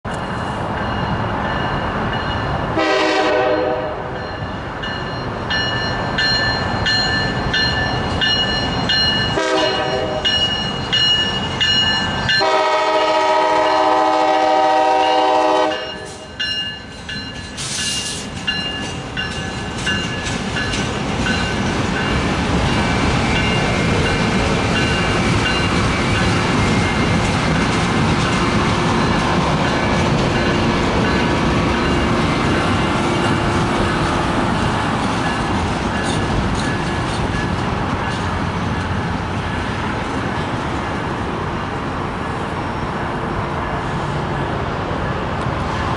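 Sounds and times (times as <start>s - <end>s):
locomotive engine and wheels rumbling: 0.0s - 45.9s
locomotive air horn blasts: 2.8s - 4.1s, 9.4s - 10.3s, 12.4s - 16.3s.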